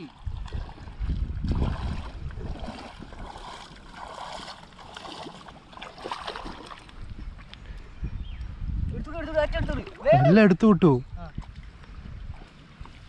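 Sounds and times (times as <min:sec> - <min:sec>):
shallow water sloshing and splashing: 0:00.0 - 0:07.6, 0:11.2 - 0:13.0.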